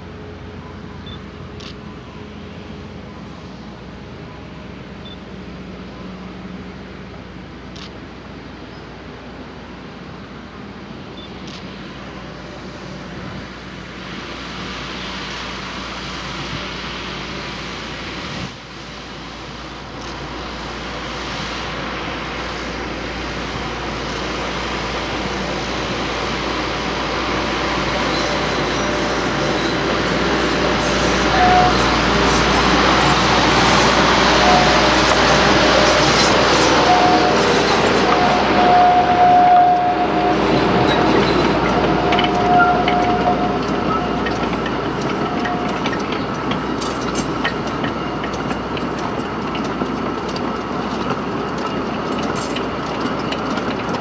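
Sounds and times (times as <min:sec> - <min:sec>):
diesel train passing: 0:00.0 - 0:54.0
high wheel squeals: 0:27.6 - 0:49.1.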